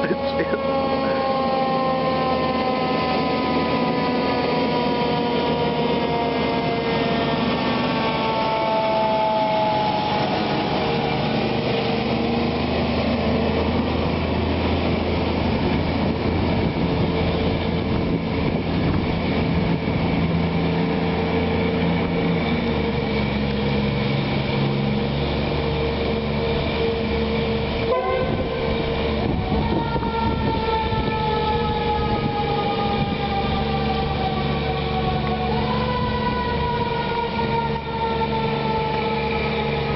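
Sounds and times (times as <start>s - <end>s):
fire engine siren: 0.0s - 39.9s.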